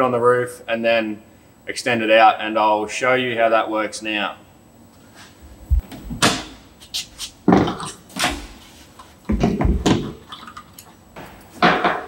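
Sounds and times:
low thuds: 5.4 - 6.2.

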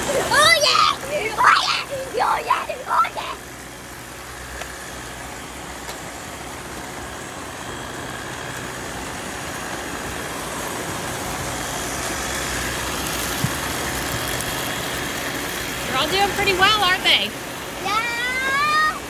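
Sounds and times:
robot vacuums whirring: 0.0 - 19.0.

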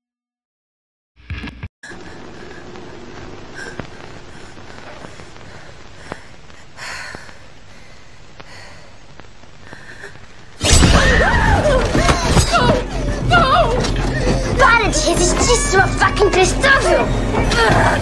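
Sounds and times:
woman breathing tensely: 1.8 - 10.6, 12.0 - 13.3, 13.9 - 14.6
low background hum: 1.8 - 18.0.

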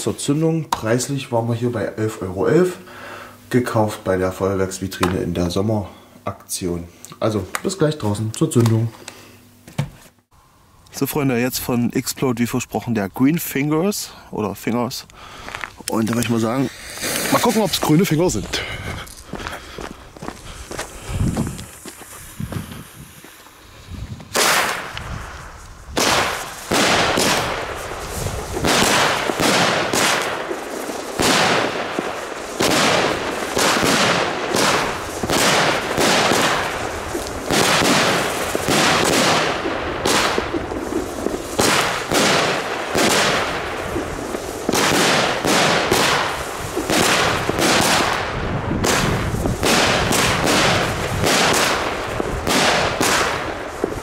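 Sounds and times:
firework launches and bursts: 16.5 - 17.9, 20.7 - 54.0.

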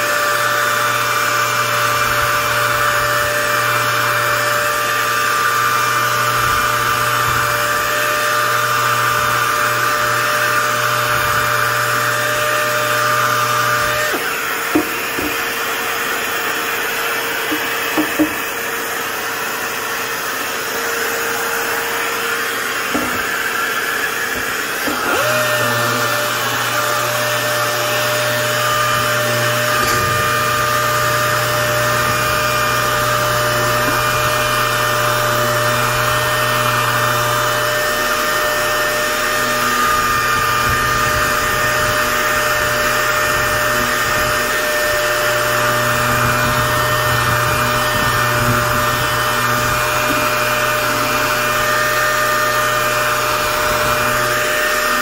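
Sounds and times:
orbital sander whirring: 0.0 - 55.0.

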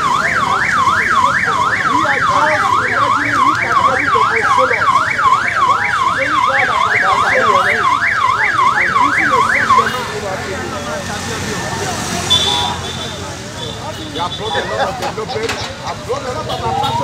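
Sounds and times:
vehicle siren yelping: 0.0 - 10.2, 16.6 - 17.0.

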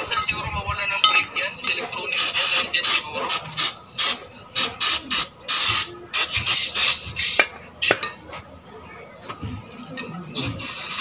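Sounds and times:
aerosol can spraying: 2.2 - 7.0.

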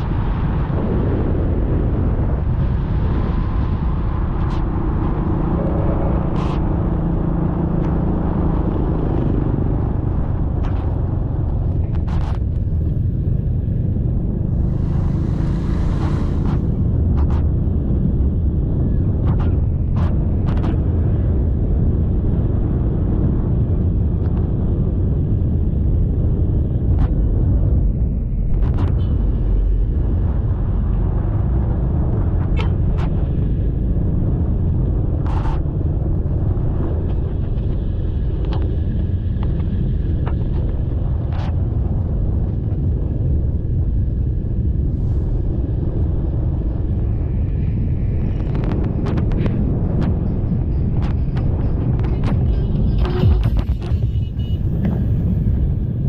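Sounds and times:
road noise: 0.0 - 56.0.

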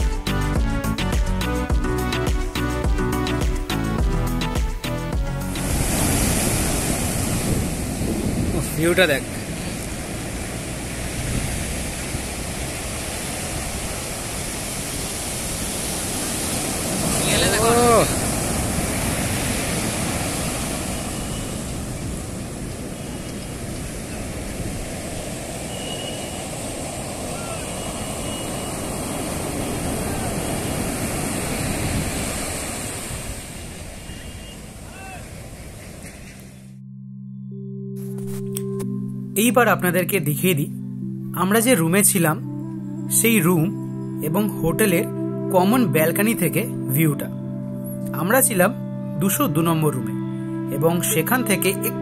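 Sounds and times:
waves breaking on beach: 5.2 - 36.5.

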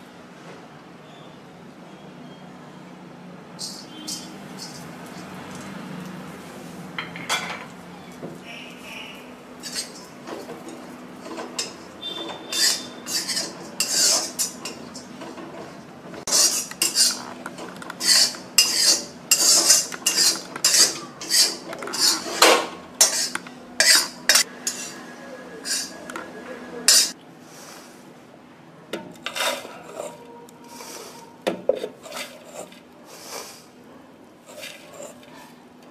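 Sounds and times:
metal spatula scraping iron pan: 3.6 - 5.4, 9.6 - 26.0, 26.9 - 27.2, 29.1 - 32.8.

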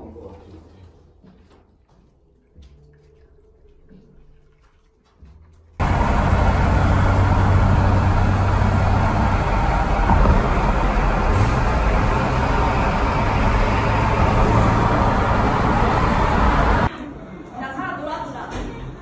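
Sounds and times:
car road and engine noise: 5.8 - 16.9.

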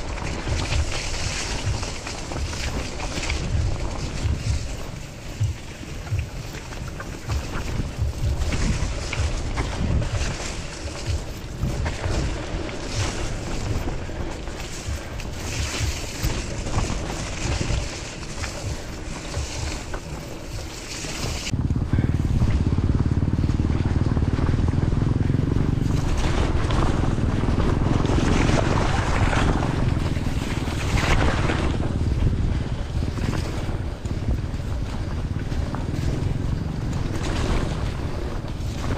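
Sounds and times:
deep rumble: 0.0 - 38.9
wind buffeting microphone: 0.0 - 38.9.

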